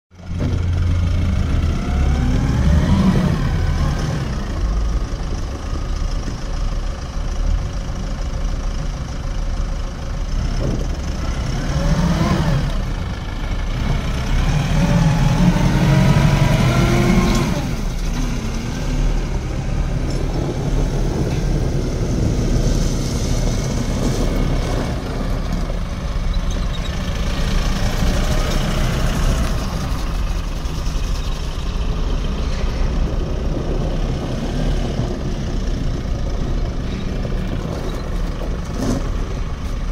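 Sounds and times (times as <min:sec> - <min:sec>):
tractor diesel engine: 0:00.1 - 0:39.9.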